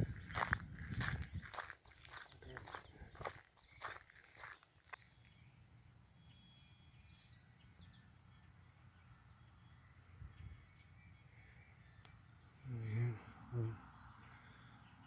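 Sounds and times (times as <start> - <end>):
footsteps on gravel: 0.0 - 5.4
faint bird chirps: 2.0 - 15.0.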